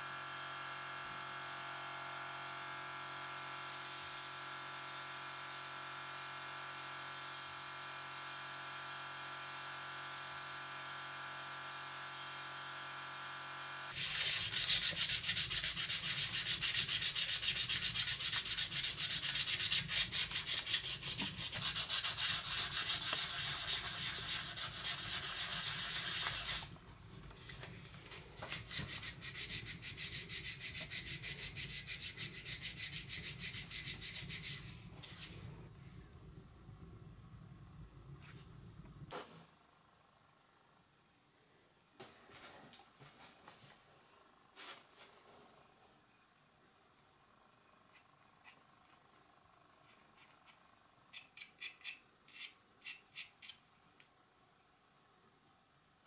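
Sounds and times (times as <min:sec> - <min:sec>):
machine hum with fixed tones: 0:00.0 - 0:56.0
sandpaper rubbing on metal: 0:13.9 - 0:26.7, 0:28.1 - 0:35.4.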